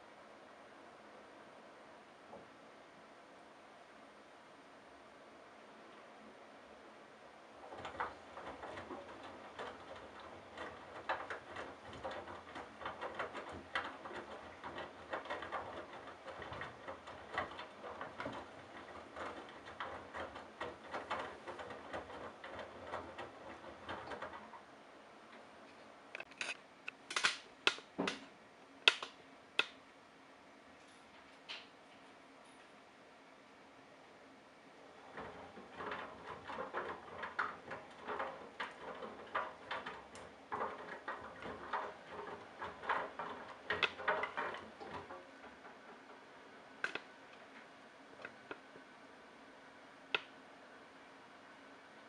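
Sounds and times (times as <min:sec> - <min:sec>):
washing machine drum tumbling laundry: 0:07.4 - 0:25.6, 0:34.8 - 0:52.0
sharp loud clicks: 0:26.2 - 0:28.2.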